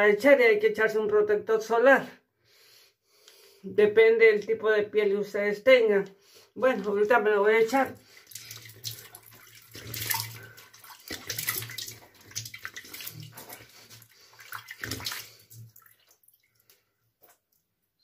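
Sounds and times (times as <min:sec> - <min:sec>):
water splashing over a basin: 0:06.7 - 0:17.6.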